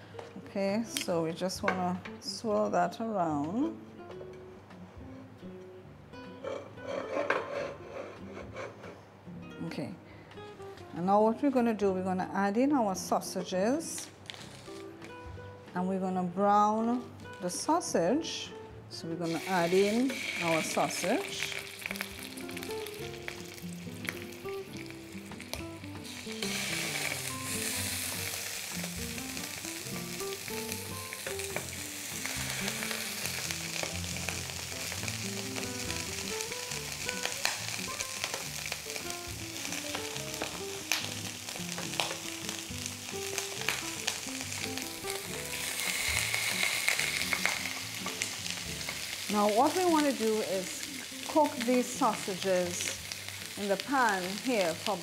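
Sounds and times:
sausages sizzling in hot oil: 19.2 - 55.0.

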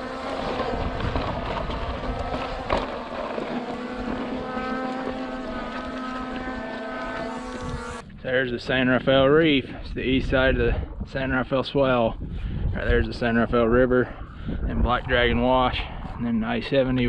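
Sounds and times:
drone propellers buzzing: 0.0 - 8.1
wind on microphone: 0.0 - 17.0.

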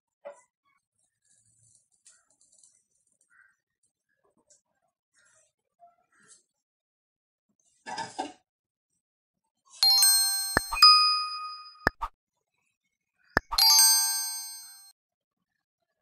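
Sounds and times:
bright bell-like chimes: 9.8 - 12.0, 13.4 - 14.9
mouse clicks: 13.4 - 13.6.

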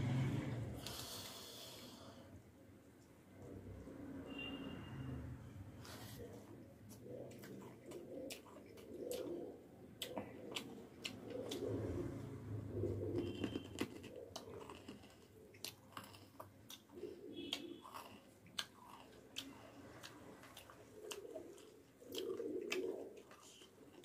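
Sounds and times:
person chewing food: 5.9 - 12.1, 12.8 - 24.0.

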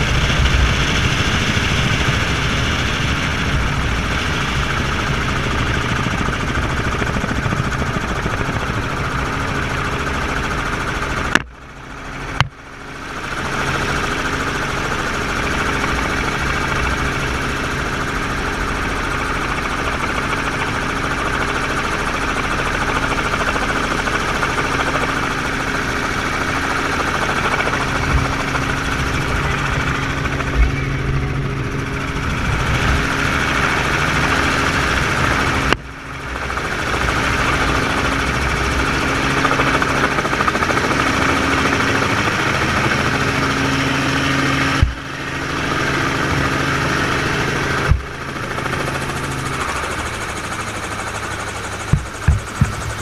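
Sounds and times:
helicopter engine and rotor: 0.0 - 53.0.

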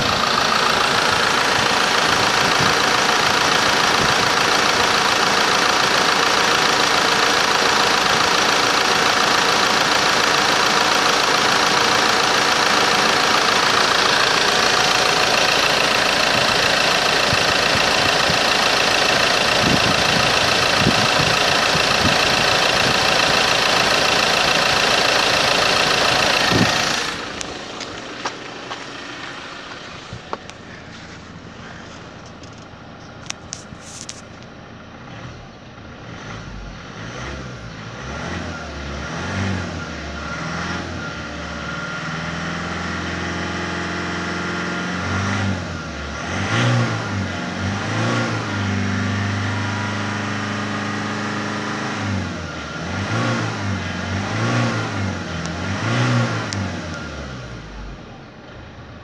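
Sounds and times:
diesel engine idling: 0.0 - 37.0, 49.2 - 59.0.

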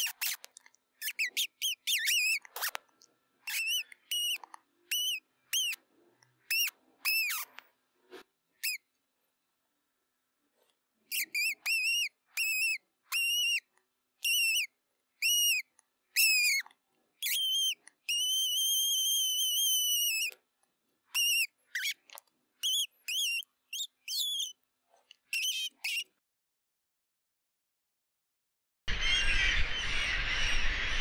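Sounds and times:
mouse squeaking: 0.0 - 2.8, 3.4 - 5.8, 6.4 - 7.6, 8.6 - 8.9, 11.1 - 20.4, 21.1 - 24.6, 25.2 - 26.2.

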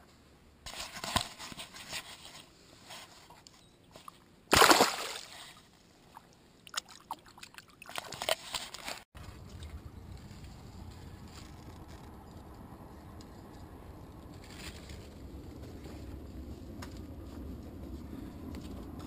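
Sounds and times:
water splashing: 4.0 - 9.0.

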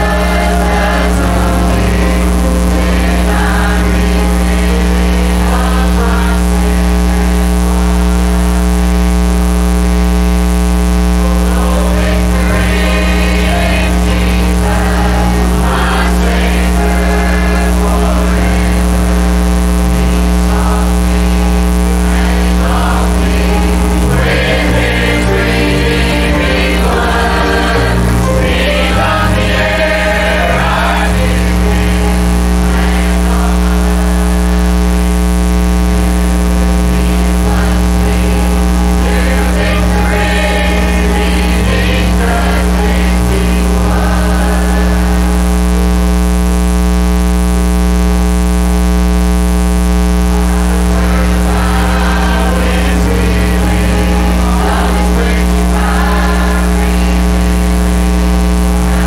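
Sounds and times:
choir singing a gospel hymn: 0.0 - 8.4, 11.2 - 19.3, 20.1 - 34.3, 37.3 - 45.4, 50.4 - 57.4
piano: 0.0 - 8.6, 11.2 - 34.3, 36.9 - 45.5.

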